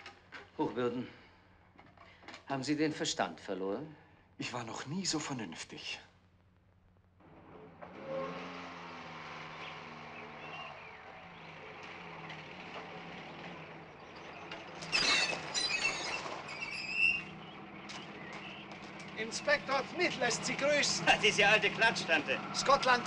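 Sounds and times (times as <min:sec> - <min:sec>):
car engine running: 0:07.0 - 0:15.5, 0:17.2 - 0:23.0
wooden gate knocking and squeaking: 0:11.7 - 0:19.7.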